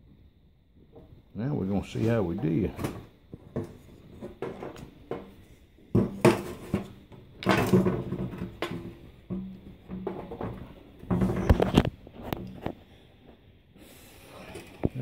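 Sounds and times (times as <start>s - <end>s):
metal mold clanking on wood: 2.7s - 12.8s.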